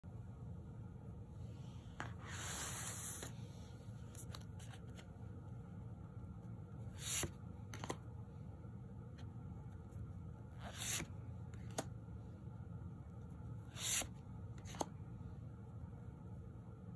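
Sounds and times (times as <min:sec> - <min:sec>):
cards rubbing and sliding: 0:01.9 - 0:05.1, 0:06.8 - 0:08.0, 0:10.5 - 0:11.9, 0:13.6 - 0:15.0.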